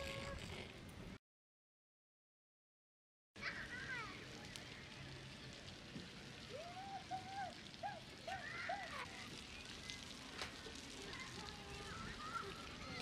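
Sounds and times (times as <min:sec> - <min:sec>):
wood fire crackling: 0:03.8 - 0:13.0.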